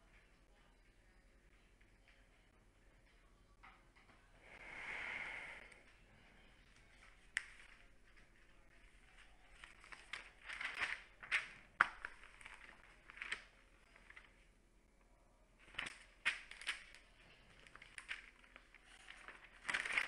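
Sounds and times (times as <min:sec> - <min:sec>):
newspaper pages turning: 0:06.7 - 0:14.5, 0:15.6 - 0:20.0
paper rustling and crinkling: 0:06.7 - 0:14.5, 0:15.6 - 0:20.0.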